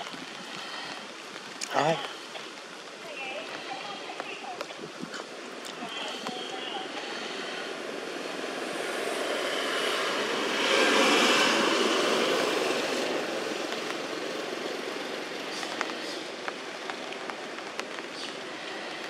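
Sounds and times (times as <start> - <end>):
vehicle passing: 5.8 - 17.4.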